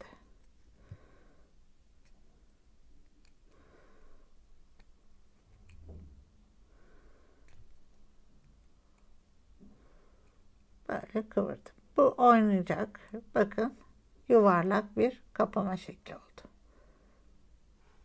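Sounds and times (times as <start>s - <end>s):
soft breaths: 0.0s - 10.8s, 16.4s - 18.0s.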